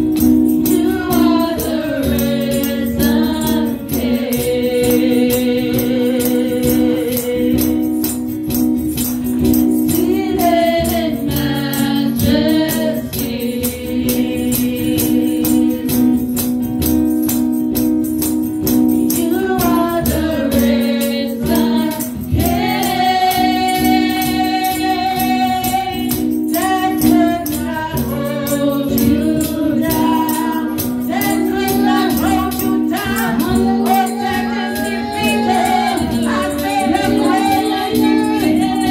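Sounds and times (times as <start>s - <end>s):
shaken percussion beat: 0.0s - 38.9s
woman singing into microphone: 0.2s - 8.2s, 9.8s - 16.4s, 18.8s - 38.9s
backing vocals: 26.6s - 38.9s.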